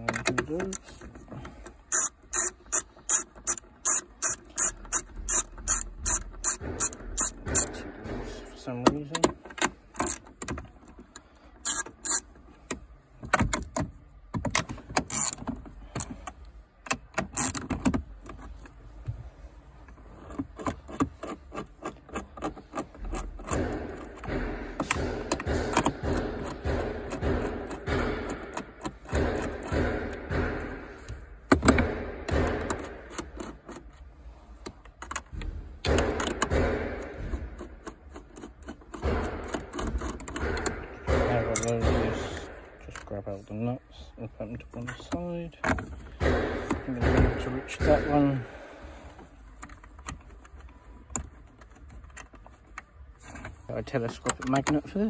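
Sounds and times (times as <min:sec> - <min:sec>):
tool knocking on nuts: 0:00.0 - 0:16.3, 0:20.5 - 0:34.0, 0:34.7 - 0:43.3, 0:44.8 - 0:50.4
fast ratchet clicking: 0:01.8 - 0:07.7, 0:11.6 - 0:12.3.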